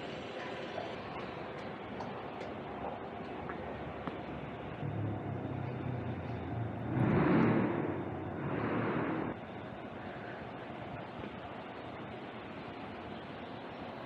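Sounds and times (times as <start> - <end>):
motor vehicle passing: 3.6 - 9.5.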